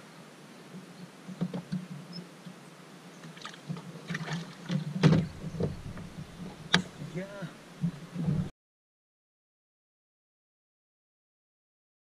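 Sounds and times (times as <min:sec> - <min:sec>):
low steady hum: 0:00.0 - 0:08.5
knocks and clatter on boat deck: 0:03.6 - 0:07.2, 0:07.8 - 0:08.5.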